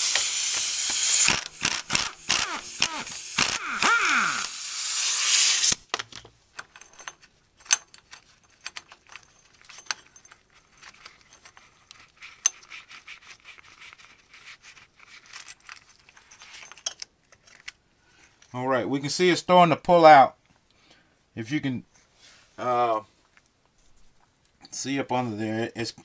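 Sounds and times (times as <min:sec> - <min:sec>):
pneumatic impact wrench: 0:00.0 - 0:05.8
metal parts clinking: 0:05.9 - 0:12.7, 0:15.0 - 0:18.6.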